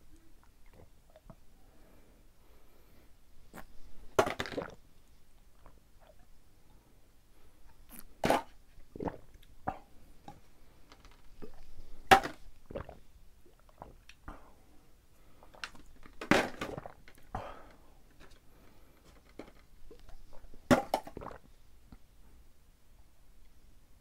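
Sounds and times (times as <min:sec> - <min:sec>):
plastic bottles knocking: 0:04.2 - 0:04.8, 0:12.1 - 0:12.4, 0:20.7 - 0:21.4
person swallowing: 0:08.9 - 0:10.4, 0:12.6 - 0:14.4, 0:19.9 - 0:21.5.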